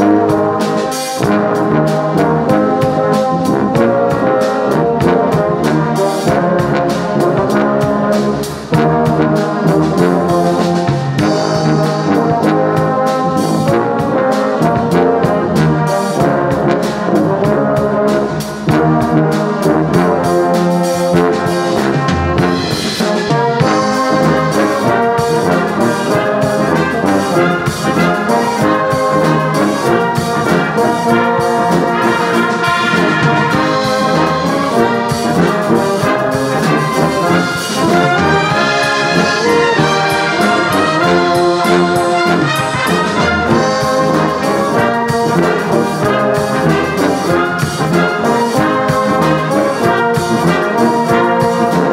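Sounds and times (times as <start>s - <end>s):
brass band playing sacred piece: 0.0s - 51.9s
flutes playing: 23.1s - 46.4s.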